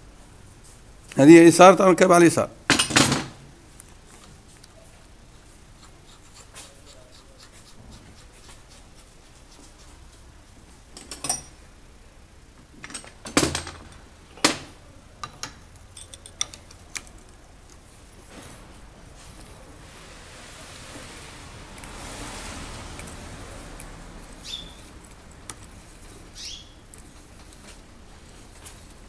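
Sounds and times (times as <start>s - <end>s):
metal clinks and knocks: 11.0s - 11.6s, 15.2s - 16.8s.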